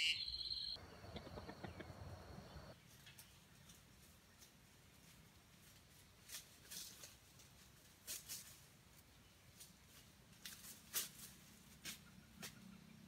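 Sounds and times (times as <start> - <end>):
crackles in dry leaves: 2.8 - 12.7.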